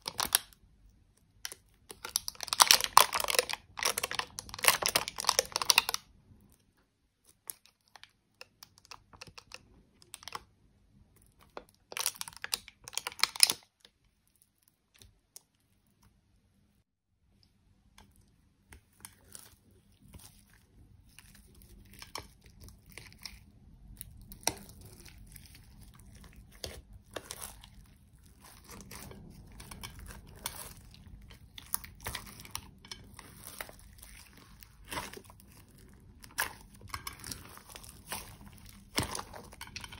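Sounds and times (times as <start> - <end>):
slime crackling and popping: 0.0 - 0.6, 1.2 - 6.1, 11.4 - 13.8, 21.0 - 39.9.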